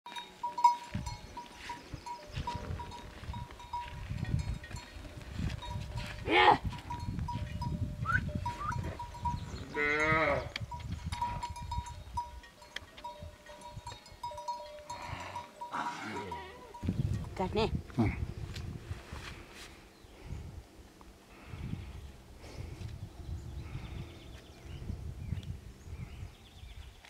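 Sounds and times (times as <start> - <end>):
animal bell ringing: 0.1 - 17.4.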